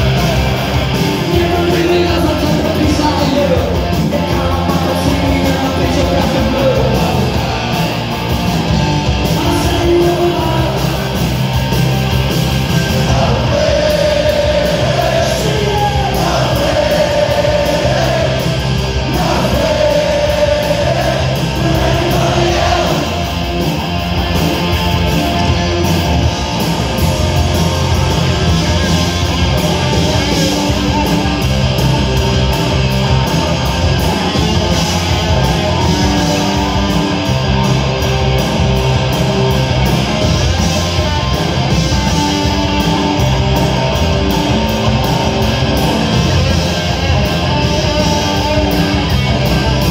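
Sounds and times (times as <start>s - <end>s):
shouted lead vocal: 0.0s - 8.0s, 9.3s - 11.2s, 12.8s - 23.8s
punk rock band playing: 0.0s - 49.9s.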